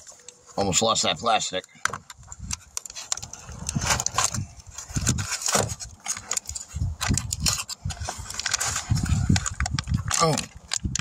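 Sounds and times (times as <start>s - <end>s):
packaging rustling and scraping: 2.2s - 11.0s.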